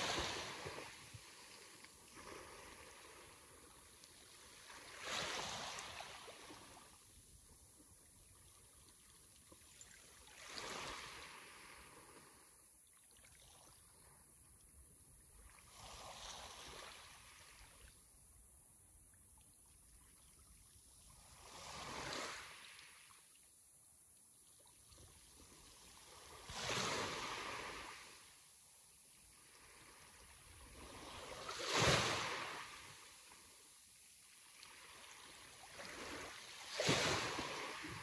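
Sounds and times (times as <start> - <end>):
sea waves washing ashore: 0.0 - 7.3, 9.8 - 12.6, 25.5 - 28.5, 29.3 - 33.7, 34.4 - 38.0
soft hiss of water: 0.0 - 38.0.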